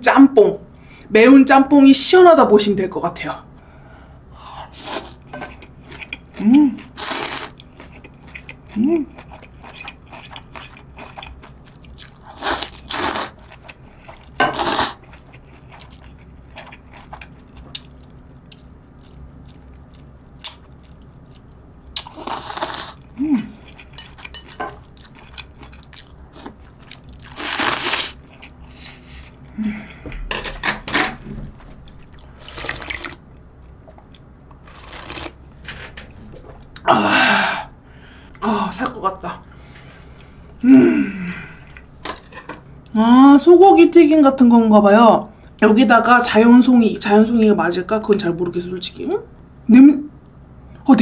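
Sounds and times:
chewing: 5.5s - 14.4s, 15.0s - 29.5s.

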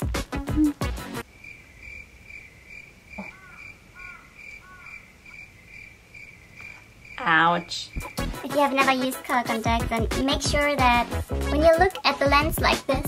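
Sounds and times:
insect chirping: 0.4s - 8.4s
short arching bird calls: 1.4s - 8.3s.

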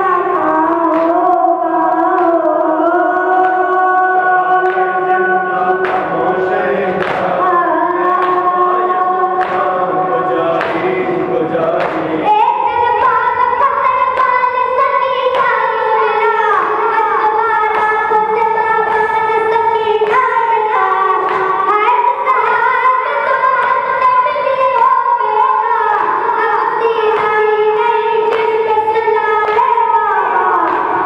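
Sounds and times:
boy chanting into a microphone: 0.0s - 31.0s
rhythmic chest slaps: 0.0s - 31.0s
men singing in chorus: 3.0s - 12.4s.

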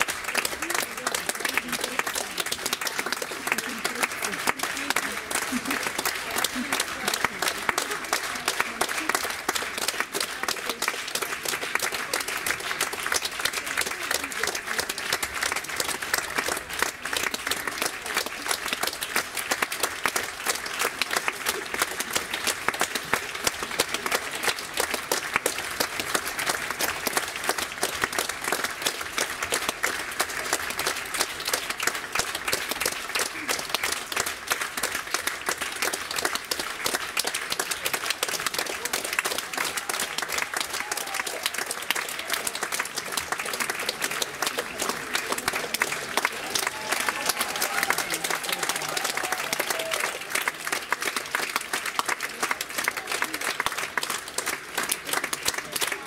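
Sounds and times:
audience applauding: 0.0s - 56.0s.

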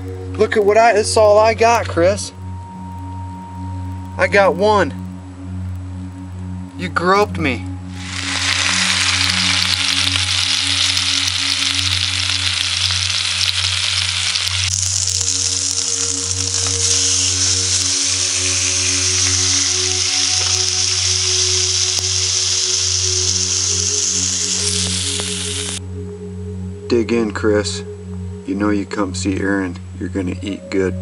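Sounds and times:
steak sizzling in a frying pan: 7.9s - 25.8s.

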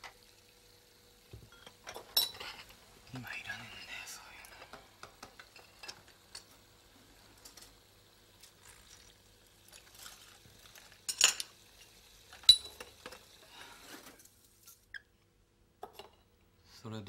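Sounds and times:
porcelain teacups and spoon clinking: 1.5s - 2.7s, 11.1s - 11.5s, 12.4s - 13.1s.

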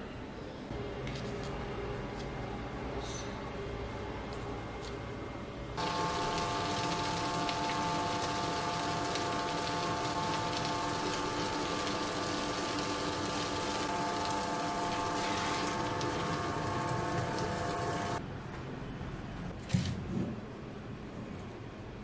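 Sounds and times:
wet grinder motor humming: 5.8s - 18.2s.

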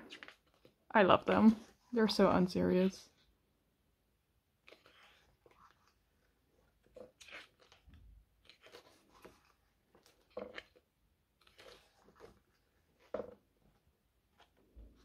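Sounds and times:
glossy pages turning: 0.0s - 0.8s, 4.6s - 13.2s.

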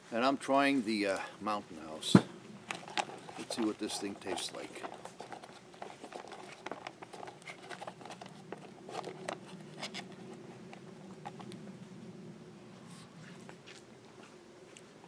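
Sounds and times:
foil pouch crinkling: 2.7s - 10.2s
spoon scraping inside a pouch: 2.8s - 10.4s.

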